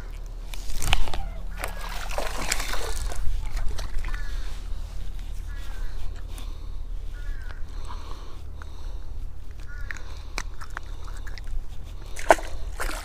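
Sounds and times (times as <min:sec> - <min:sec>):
fish splashing in water: 0:00.0 - 0:06.6, 0:09.7 - 0:13.0.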